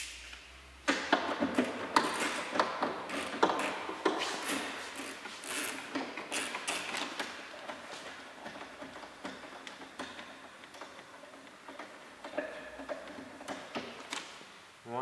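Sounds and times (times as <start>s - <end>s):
footsteps on workshop floor: 1.2s - 9.5s.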